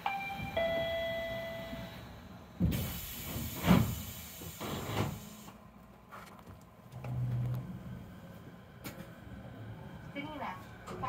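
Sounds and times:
sliding doors hissing: 0:02.6 - 0:05.6.

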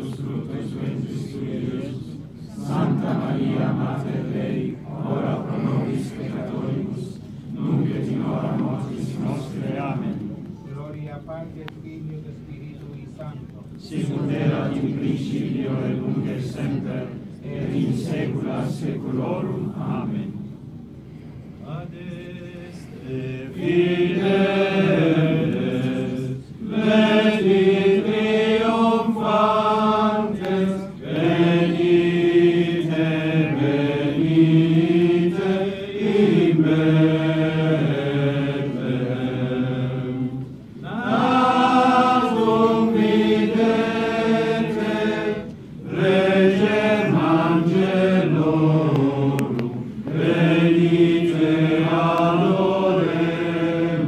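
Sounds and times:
group chanting a hymn: 0:00.0 - 0:10.4, 0:13.8 - 0:20.8, 0:21.6 - 0:54.0.

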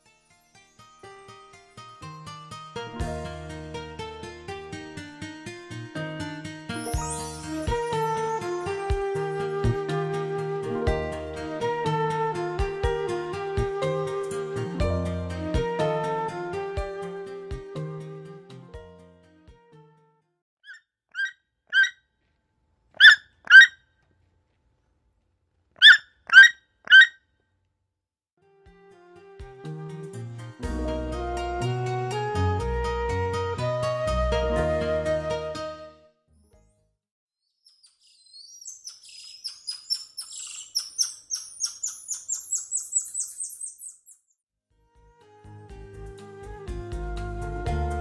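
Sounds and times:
toucan calling: 0:20.7 - 0:22.0, 0:23.0 - 0:23.8, 0:25.8 - 0:27.2, 0:38.5 - 0:44.2.

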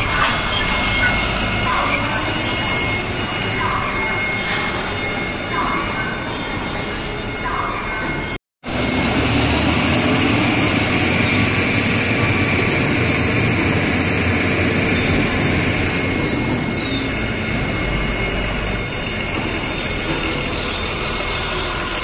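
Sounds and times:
forklift engine rumbling: 0:08.7 - 0:22.0.

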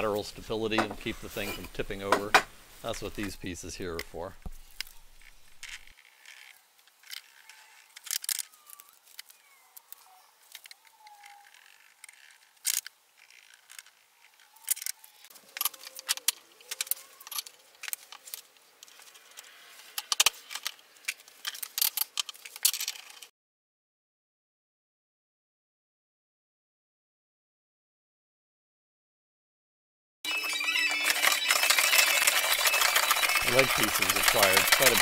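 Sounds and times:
boards and clamps clicking: 0:00.7 - 0:02.5, 0:30.4 - 0:35.0.

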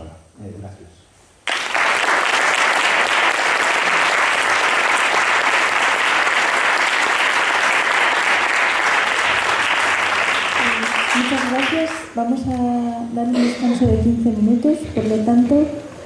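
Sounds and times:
audience applauding: 0:01.4 - 0:12.2.

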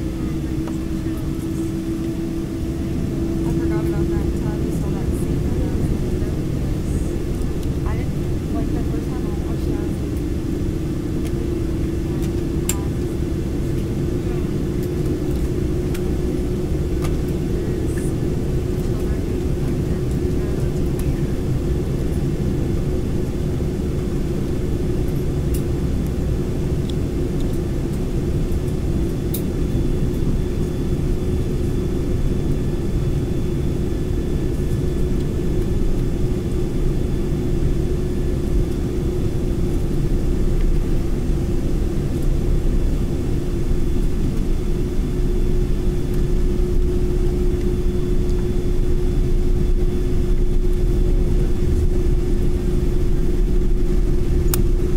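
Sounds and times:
jet engine hum in cabin: 0:00.0 - 0:54.9
low rumble of aircraft rolling: 0:00.0 - 0:54.9.

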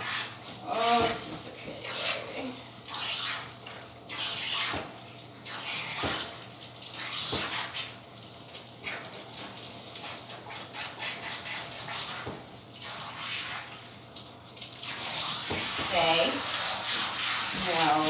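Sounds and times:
water spray hissing: 0:14.8 - 0:18.0.

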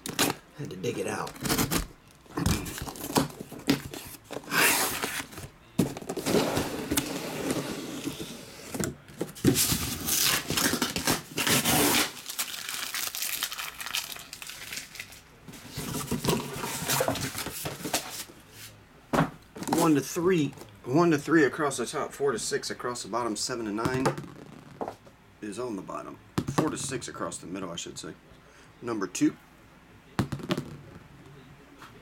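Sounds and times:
tape and cardboard tearing: 0:00.0 - 0:00.4, 0:01.3 - 0:05.5, 0:09.3 - 0:13.5
plastic wrap crinkling: 0:09.6 - 0:15.3.

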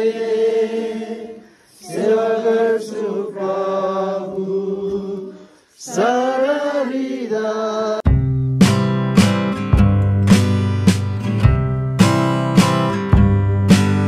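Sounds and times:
voices singing a hymn unaccompanied: 0:00.0 - 0:08.0.

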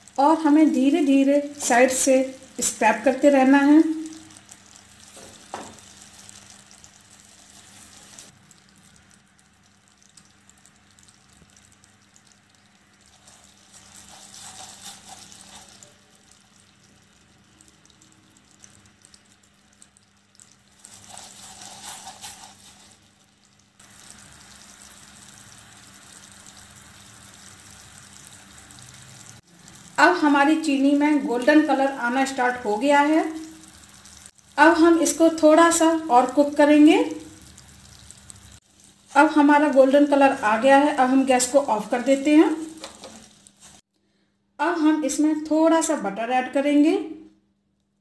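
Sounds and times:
sugar syrup bubbling in a pan: 0:00.8 - 0:30.0, 0:30.6 - 0:43.9
spatula scraping a pan: 0:13.2 - 0:15.9, 0:20.8 - 0:23.0.

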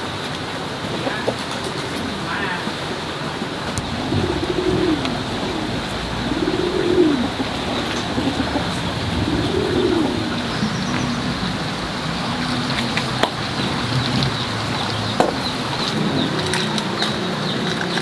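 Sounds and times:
background hiss: 0:00.0 - 0:13.0
dove cooing: 0:00.8 - 0:13.8, 0:15.7 - 0:18.0.

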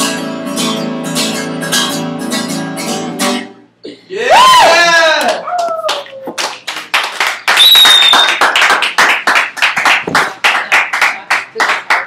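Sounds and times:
people clapping: 0:05.1 - 0:12.0
short whistle: 0:07.5 - 0:08.5.

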